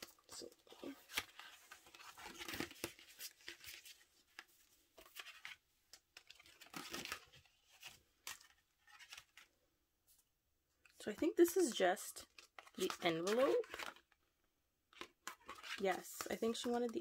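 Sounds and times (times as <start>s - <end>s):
packaging rustling and crinkling: 0.0s - 5.6s.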